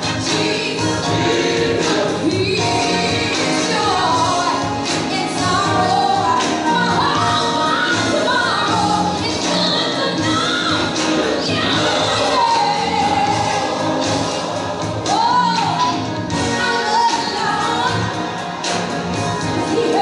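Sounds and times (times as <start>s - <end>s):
gospel choir singing: 0.0s - 20.0s.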